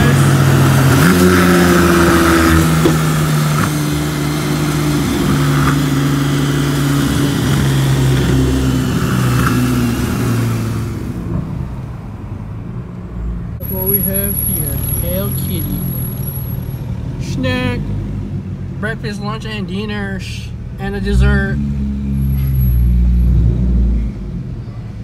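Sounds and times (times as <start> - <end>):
car engine droning: 0.0 - 25.0.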